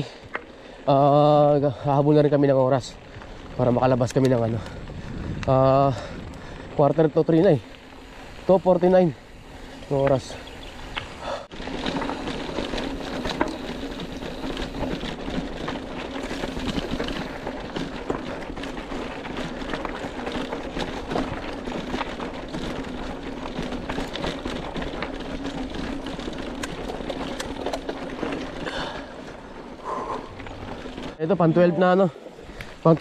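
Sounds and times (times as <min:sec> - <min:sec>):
bicycle tyres on rough trail: 0:00.0 - 0:33.0
small clatters and rattles: 0:11.5 - 0:31.2.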